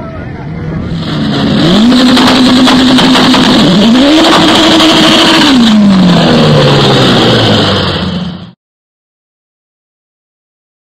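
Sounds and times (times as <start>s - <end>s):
car engine revving: 0.9s - 8.6s.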